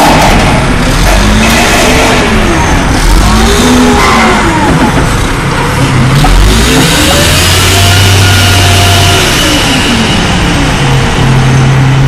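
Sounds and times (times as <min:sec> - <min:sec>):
engine and hydraulics running: 0:00.0 - 0:12.0.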